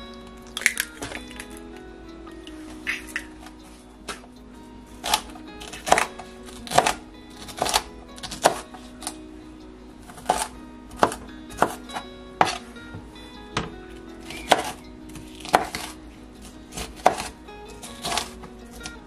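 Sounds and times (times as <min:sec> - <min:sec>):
soft background music: 0:00.0 - 0:19.0
knife chopping on cutting board: 0:05.0 - 0:09.2, 0:10.1 - 0:12.6, 0:13.6 - 0:16.0, 0:16.7 - 0:18.9.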